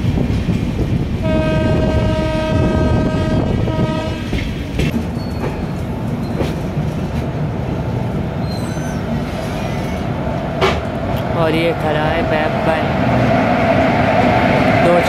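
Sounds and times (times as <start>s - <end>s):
train wheels clickety-clack: 0.0s - 7.5s, 8.4s - 11.3s
locomotive horn blasts: 1.2s - 4.4s.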